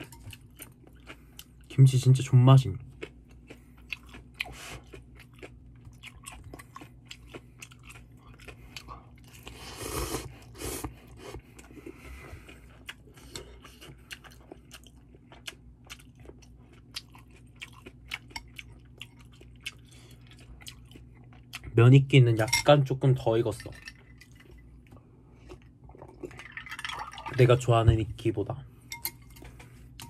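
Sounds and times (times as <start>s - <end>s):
wet chewing with mouth clicks: 0.0s - 1.8s, 2.8s - 21.8s, 23.8s - 26.7s
faint low hum: 0.0s - 30.0s.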